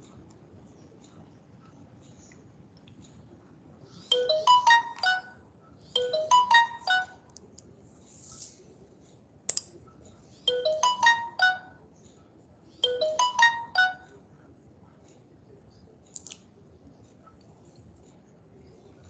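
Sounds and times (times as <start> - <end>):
phone ringtone melody: 4.1 - 5.4, 6.0 - 7.2, 10.5 - 11.8, 12.8 - 14.1.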